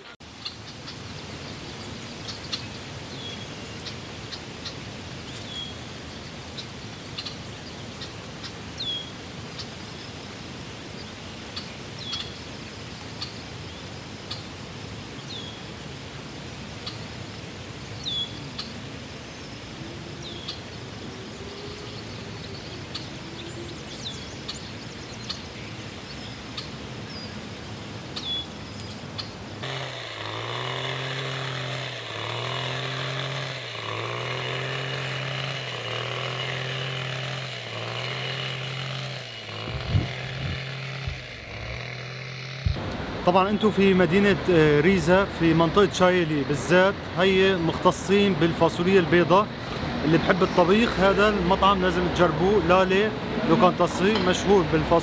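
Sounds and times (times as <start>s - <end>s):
small engine hum: 11.8s - 55.0s.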